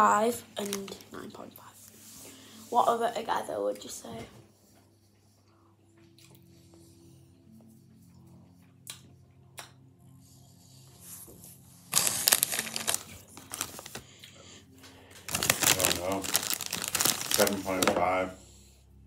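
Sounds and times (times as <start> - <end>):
crisp packets crinkling: 11.9 - 14.1, 15.2 - 18.2.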